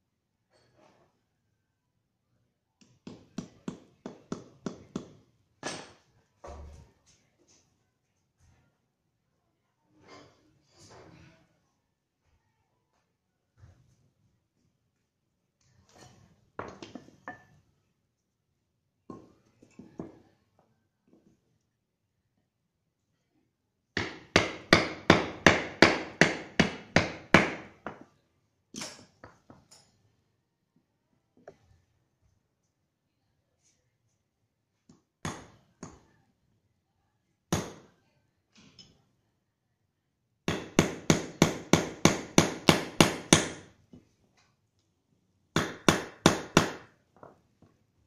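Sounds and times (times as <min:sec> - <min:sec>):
hammer striking wooden block: 0:02.8 - 0:06.0, 0:24.0 - 0:28.1, 0:37.5 - 0:37.9, 0:40.5 - 0:43.7, 0:45.6 - 0:46.9.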